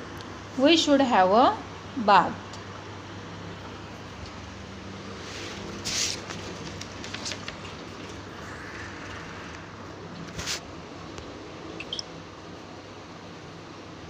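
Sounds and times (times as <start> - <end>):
room hum with hiss: 0.0 - 14.0
rustling noise: 5.1 - 10.7.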